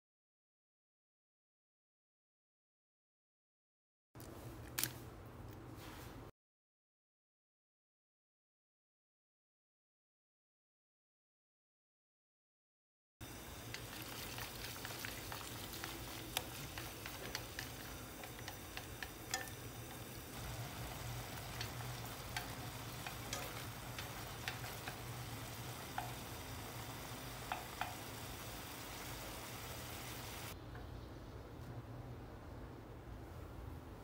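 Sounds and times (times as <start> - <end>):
food sizzling in a frying pan: 13.2 - 30.6.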